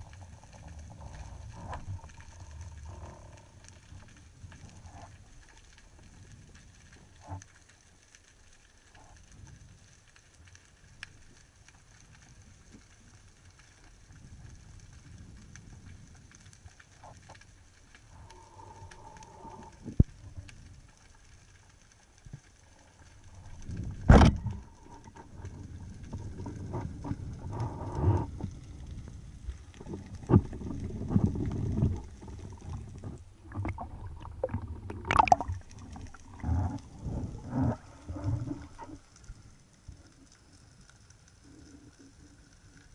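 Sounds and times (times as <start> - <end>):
muffled underwater noise: 22.7 - 39.4
water churning and splashing: 29.6 - 39.1.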